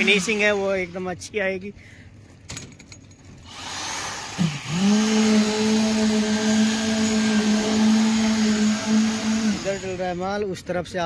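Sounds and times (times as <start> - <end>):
concrete vibrator humming: 2.7 - 10.2.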